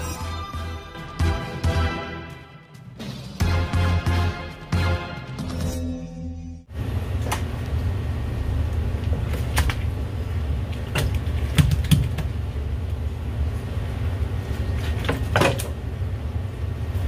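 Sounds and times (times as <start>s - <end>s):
steady low hum: 6.0s - 17.0s.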